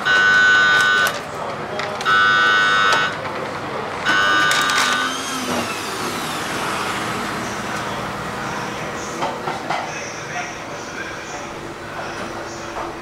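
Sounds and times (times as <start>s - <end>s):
appliance alarm beeping: 0.0s - 1.3s, 2.0s - 3.2s, 4.0s - 9.0s
kitchen background noise: 0.0s - 13.0s.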